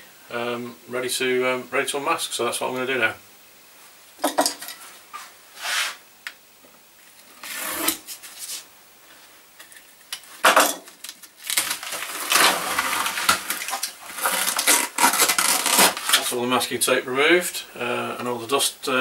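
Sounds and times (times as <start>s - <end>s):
paper and foil crinkling: 10.8s - 16.4s
masking tape peeling: 11.0s - 16.4s.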